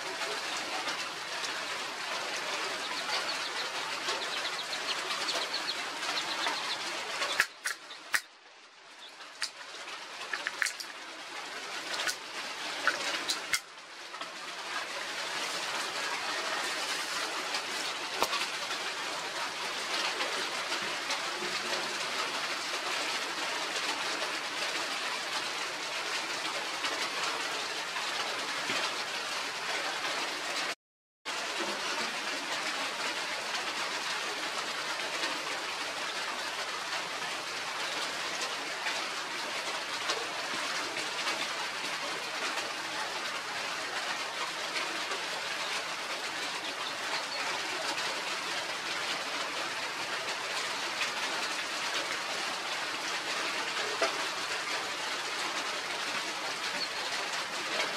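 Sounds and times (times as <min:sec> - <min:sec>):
steady rushing hiss: 0:00.0 - 0:29.1
sharp clicks: 0:03.0 - 0:08.3.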